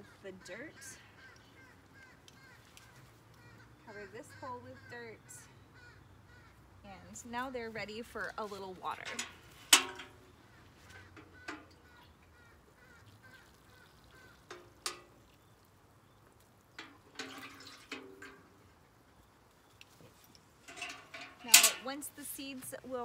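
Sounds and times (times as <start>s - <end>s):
loud bird calls: 0.0s - 6.7s, 10.1s - 17.0s
water trickling onto soil: 1.2s - 3.8s, 7.8s - 23.0s.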